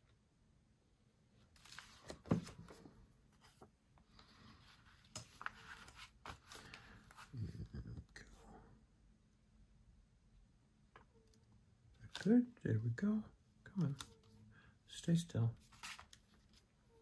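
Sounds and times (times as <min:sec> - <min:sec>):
paper rustling and crinkling: 0:01.5 - 0:07.3, 0:15.6 - 0:17.0.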